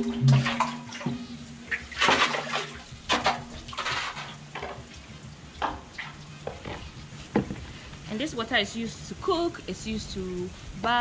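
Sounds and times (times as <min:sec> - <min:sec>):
water splashing in a bucket: 0:00.0 - 0:05.0.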